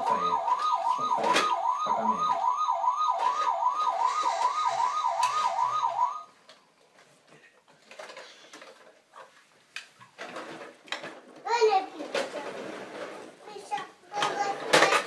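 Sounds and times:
electronic toy siren wailing: 0:00.0 - 0:06.3.

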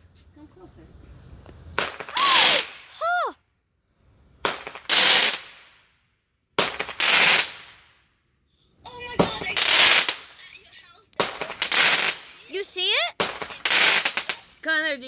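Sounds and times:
firework shots bursting: 0:01.7 - 0:03.0, 0:04.4 - 0:06.0, 0:06.6 - 0:08.0, 0:09.1 - 0:10.4, 0:11.2 - 0:14.7.

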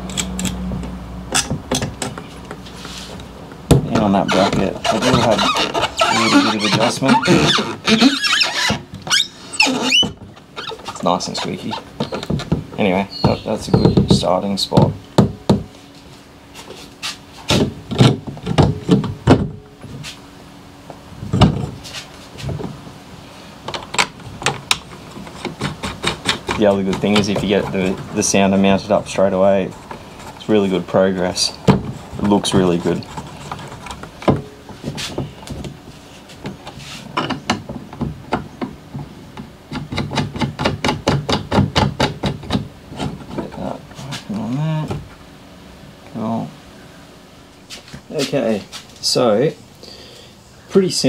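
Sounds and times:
cardboard scraping: 0:02.6 - 0:03.2, 0:03.9 - 0:12.5
sharp plastic clicks and knocks: 0:37.2 - 0:42.7.

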